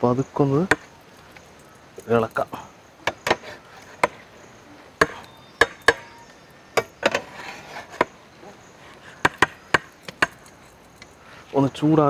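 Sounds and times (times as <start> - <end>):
spatula scraping through rice: 7.2 - 8.1.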